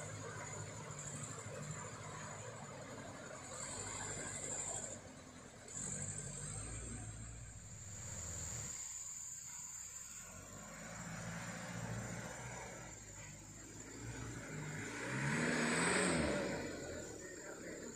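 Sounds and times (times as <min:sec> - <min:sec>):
truck engine running: 0:00.0 - 0:17.9
high insect drone: 0:05.7 - 0:17.9.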